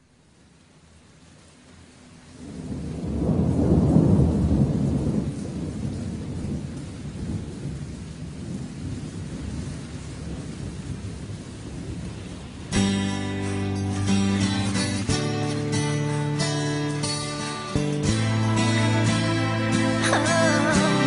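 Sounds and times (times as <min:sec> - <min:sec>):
rain: 0:00.0 - 0:21.0
rolling thunder rumble: 0:02.4 - 0:12.8.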